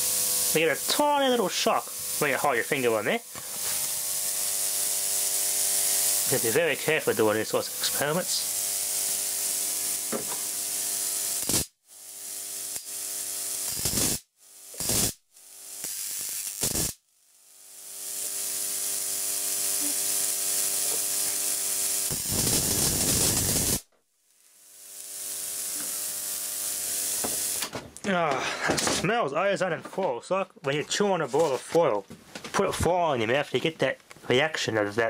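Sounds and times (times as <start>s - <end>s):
hissing sizzle of sparks: 0.0s - 27.7s
sharp spark crack: 0.0s - 27.7s
electrical buzz: 0.0s - 27.8s.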